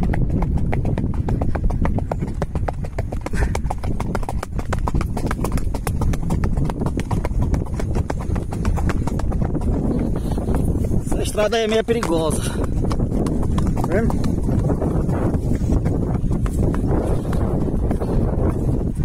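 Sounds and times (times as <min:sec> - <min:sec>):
horse hooves clip-clopping: 0:00.0 - 0:19.0.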